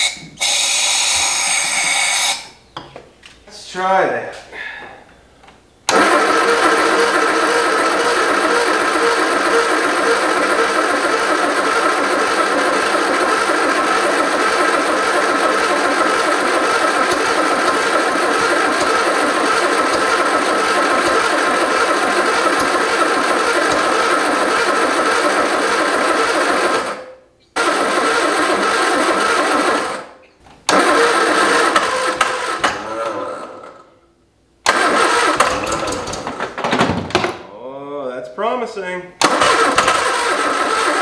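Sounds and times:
car engine cranking on starter: 0:05.9 - 0:33.7, 0:34.7 - 0:36.6, 0:39.2 - 0:41.0.

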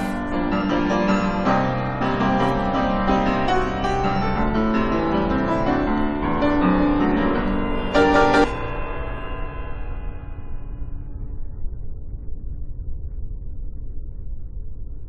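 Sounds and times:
grand piano playing: 0:00.0 - 0:10.0
loud struck sound ringing: 0:06.5 - 0:11.6.

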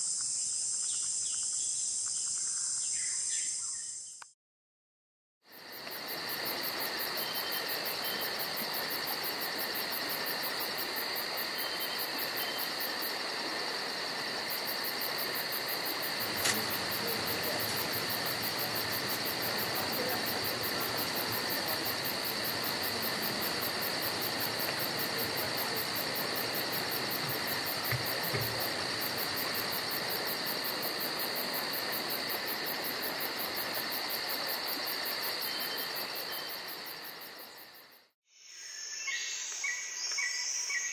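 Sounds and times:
insect chorus buzzing: 0:00.0 - 0:04.3, 0:05.5 - 0:40.9
sharp click: 0:16.4 - 0:16.7.

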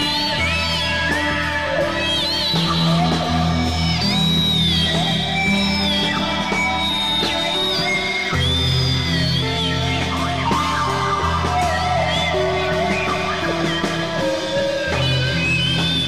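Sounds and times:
rock guitar with bending notes: 0:00.0 - 0:16.0.

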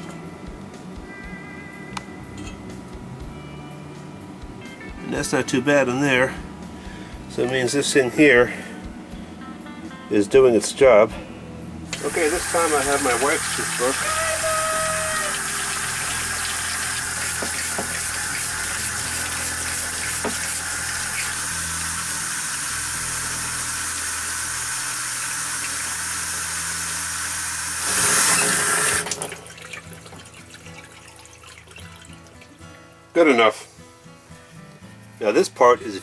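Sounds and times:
faucet water running into sink: 0:11.9 - 0:32.6
toothbrush scrubbing: 0:15.3 - 0:21.5.

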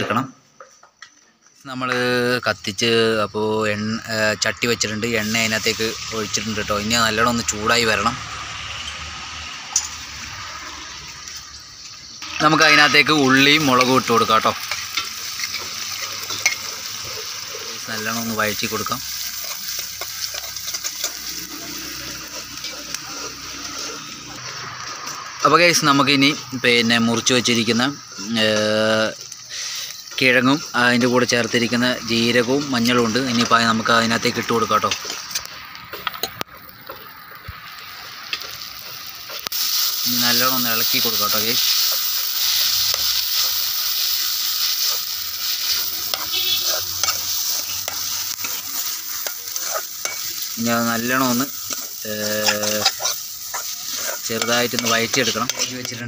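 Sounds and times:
vegetables sizzling in hot oil: 0:01.7 - 0:56.0
metal spoon scraping a pan: 0:12.2 - 0:37.0, 0:38.2 - 0:56.0.

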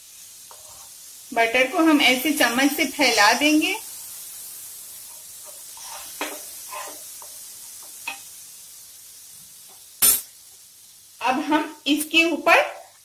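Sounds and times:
butter sizzling in a pan: 0:00.0 - 0:13.0
spoon scraping and tapping pan: 0:00.5 - 0:00.9, 0:05.1 - 0:08.3.

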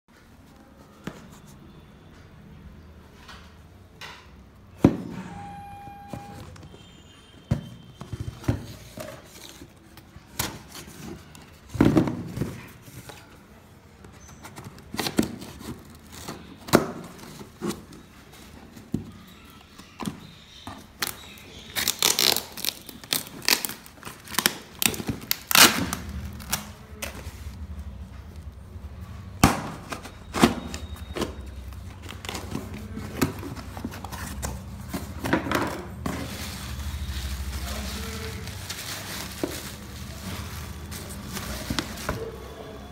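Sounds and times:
tape peeling and tearing: 0:21.8 - 0:26.7.

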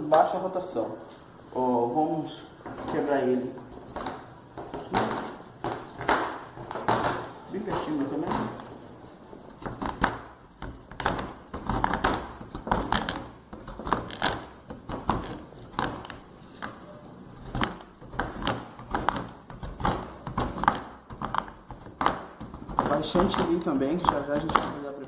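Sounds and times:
knife chopping on plastic board: 0:04.0 - 0:08.7, 0:09.6 - 0:16.8, 0:17.4 - 0:24.9
chocolate crunching: 0:09.6 - 0:16.6.

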